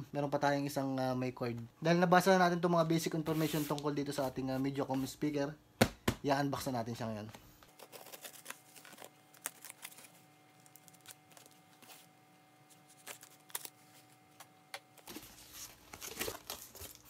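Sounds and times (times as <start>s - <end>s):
hands rubbing cardboard: 3.3s - 5.1s
knife slitting packing tape: 7.8s - 11.6s.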